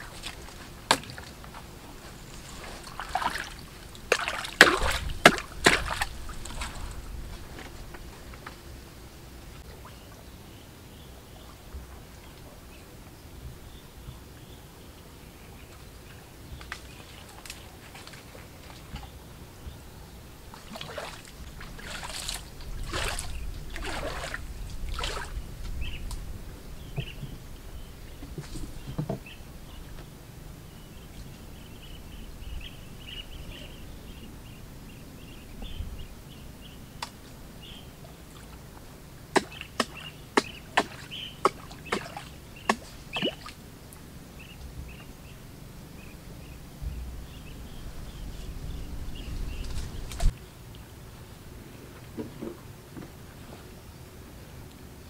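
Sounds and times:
paddle sloshing in water: 0.0s - 8.6s, 16.6s - 26.0s, 37.0s - 43.6s
sharp knocks on wooden boat: 4.1s - 6.8s, 28.2s - 29.4s, 39.4s - 43.5s.

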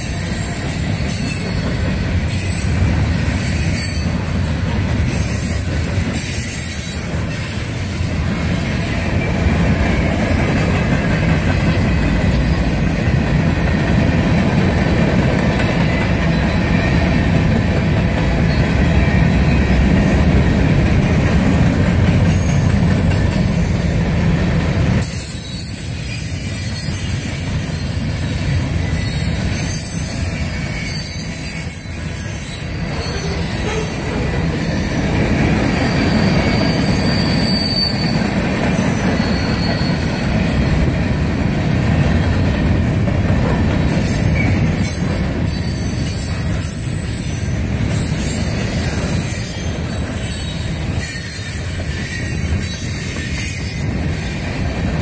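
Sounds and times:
high wheel squeal: 0.0s - 4.3s, 25.0s - 40.8s, 43.9s - 54.7s
train wheels rumbling on rails: 0.0s - 55.0s.

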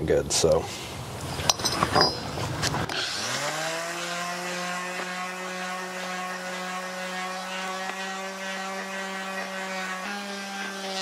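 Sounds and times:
electric sander grinding steel: 2.9s - 11.0s.

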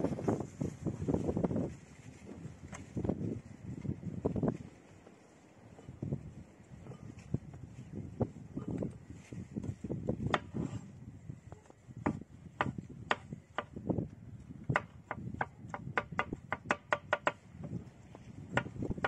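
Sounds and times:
knife chopping on wooden board: 12.0s - 13.7s, 14.7s - 17.8s.

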